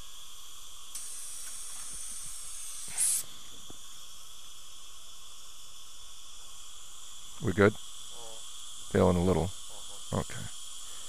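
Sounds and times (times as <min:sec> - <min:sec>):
steady high whine: 0:00.0 - 0:11.0
air syringe hissing: 0:00.9 - 0:03.5.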